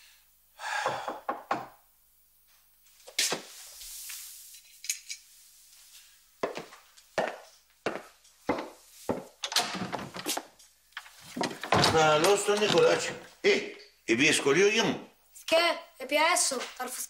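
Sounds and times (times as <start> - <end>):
footsteps on hard floor: 5.7 - 13.3
wooden chair knocking and scraping: 8.6 - 10.5, 11.2 - 13.2.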